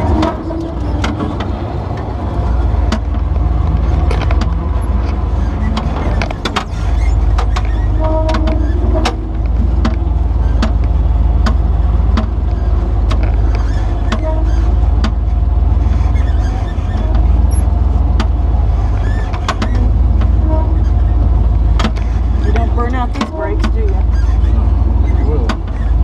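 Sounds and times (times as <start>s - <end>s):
vehicle engine low rumble: 0.0s - 26.0s.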